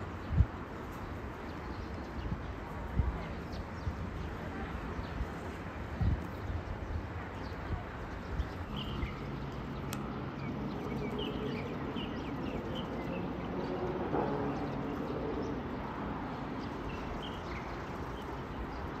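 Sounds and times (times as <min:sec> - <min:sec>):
road traffic rumble: 0:00.0 - 0:19.0
small birds chirping: 0:00.2 - 0:19.0
distant train passing: 0:08.8 - 0:18.5.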